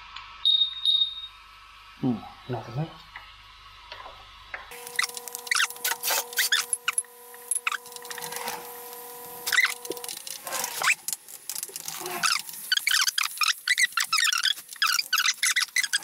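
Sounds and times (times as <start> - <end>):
steady multi-tone hum: 0.0 - 16.0
sped-up chattering squeaks: 4.8 - 7.0, 7.6 - 8.3, 9.4 - 10.2, 12.2 - 16.0.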